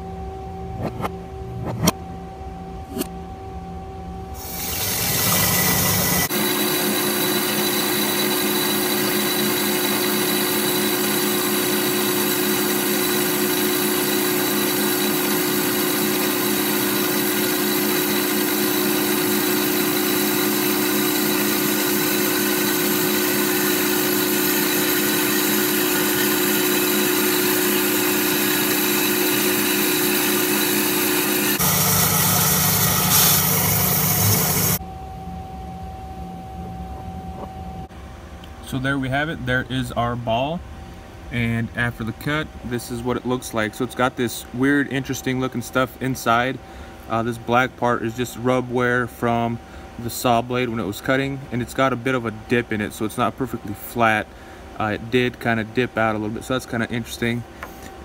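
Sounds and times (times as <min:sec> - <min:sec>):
band saw cutting: 0:04.4 - 0:34.8.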